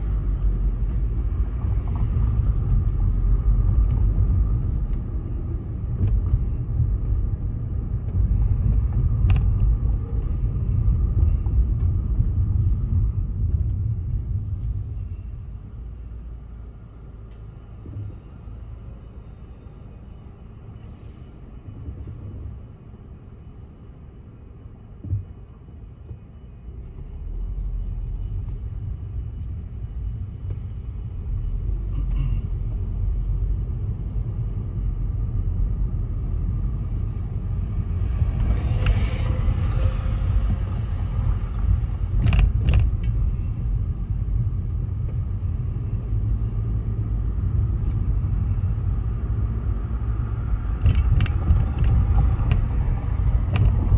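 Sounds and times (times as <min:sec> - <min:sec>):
car engine and road rumble: 0:00.0 - 0:53.9
passing traffic rush: 0:27.5 - 0:53.9.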